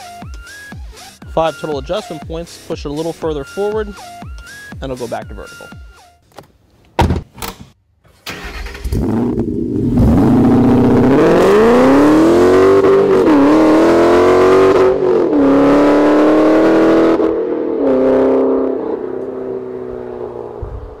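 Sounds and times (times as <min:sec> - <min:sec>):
car engine accelerating: 0:08.3 - 0:21.0.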